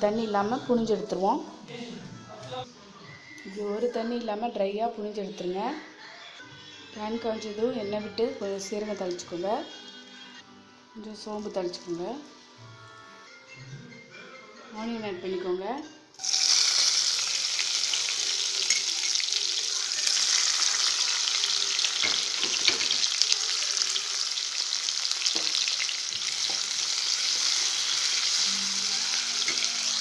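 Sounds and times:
onions sizzling in oil: 16.2s - 30.0s.

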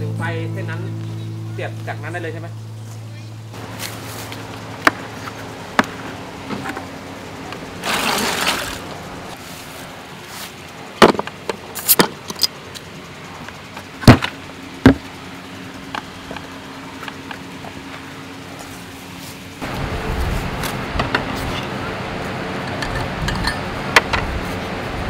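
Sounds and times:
rattling rustle: 7.8s - 12.6s
clatters and clinks: 22.6s - 23.7s.

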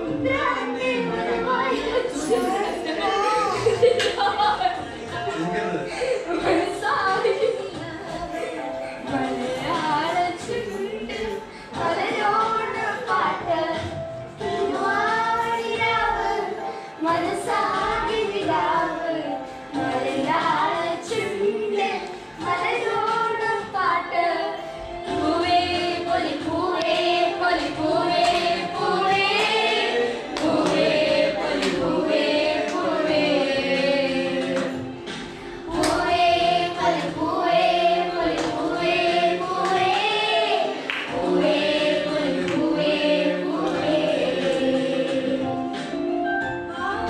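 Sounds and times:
group singing: 0.0s - 46.0s.

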